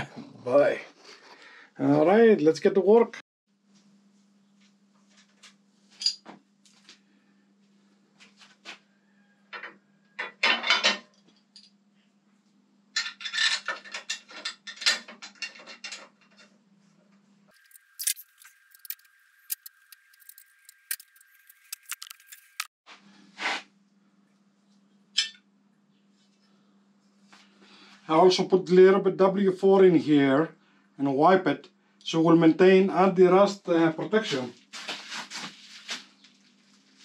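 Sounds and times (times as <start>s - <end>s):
metal tools clinking and rattling: 6.0s - 6.2s, 13.0s - 16.5s.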